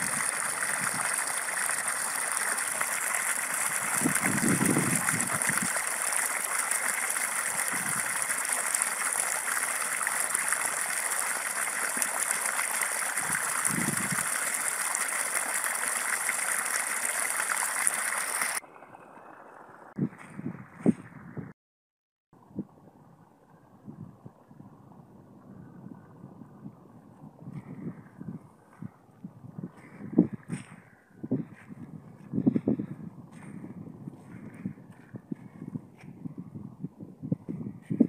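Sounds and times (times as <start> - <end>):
water gushing from a pipe: 0.0 - 20.0.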